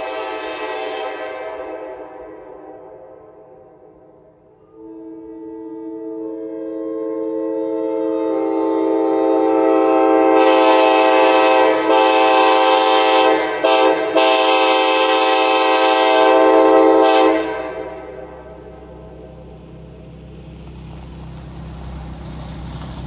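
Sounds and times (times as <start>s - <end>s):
locomotive air horn blast: 0.0s - 19.5s
low steady rumble: 17.6s - 23.0s.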